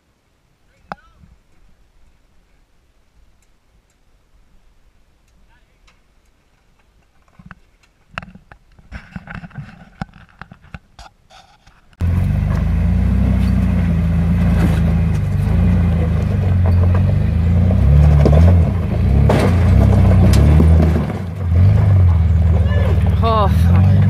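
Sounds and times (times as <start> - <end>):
engine under load: 12.0 - 24.0
tyres crawling over loose rock: 12.4 - 24.0.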